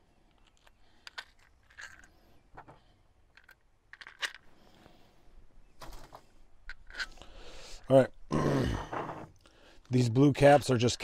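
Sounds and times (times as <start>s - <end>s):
plastic housing clicks and knocks: 2.6s - 4.4s.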